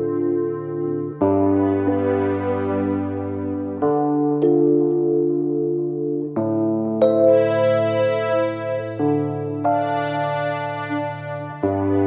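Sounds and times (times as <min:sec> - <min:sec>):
sustained keyboard chords: 0:00.0 - 0:12.0.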